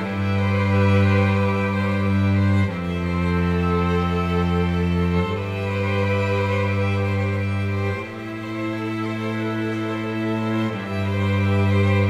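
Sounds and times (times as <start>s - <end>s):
held string chords: 0.0s - 12.0s.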